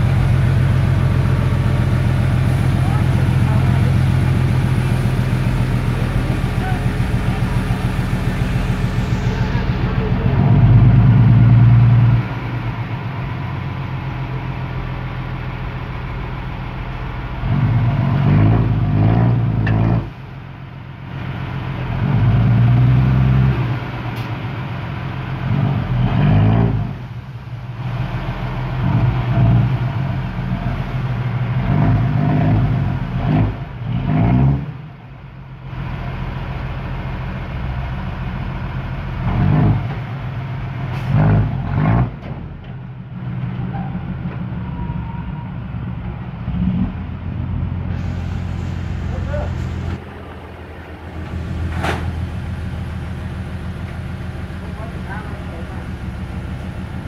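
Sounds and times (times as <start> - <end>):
diesel truck engine revving: 0.0 - 57.0
soil load tipping out: 47.9 - 55.1.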